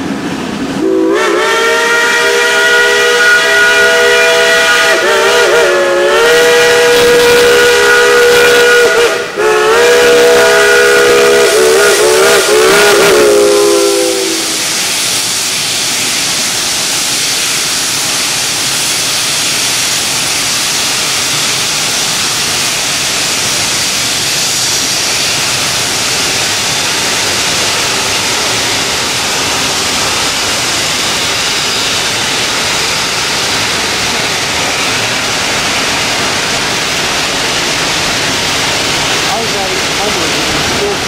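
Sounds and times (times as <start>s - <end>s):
water rushing over stones: 34.7s - 41.0s.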